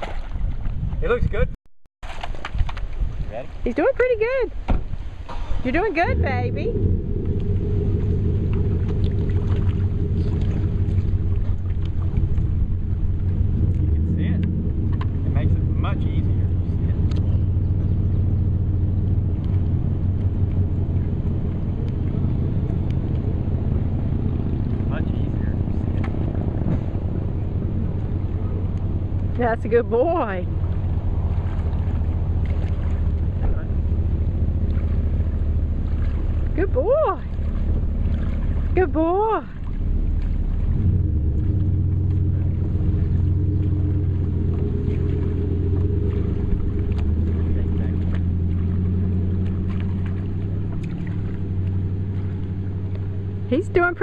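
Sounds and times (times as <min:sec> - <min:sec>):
engine running low rumble: 0:00.0 - 0:54.0
boat motor droning: 0:02.1 - 0:54.0.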